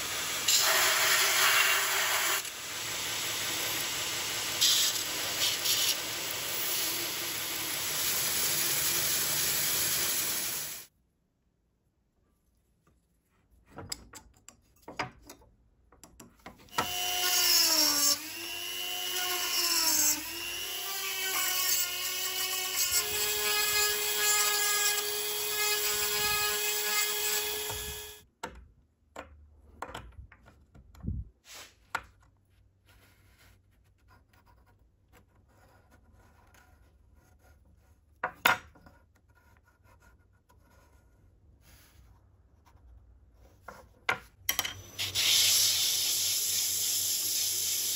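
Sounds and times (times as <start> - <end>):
rotary tool cutting wood: 16.7 - 28.2.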